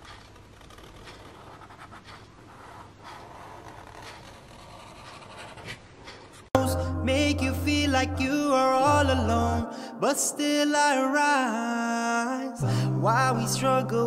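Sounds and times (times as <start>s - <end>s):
marker rubbing on paper: 0.0s - 6.6s.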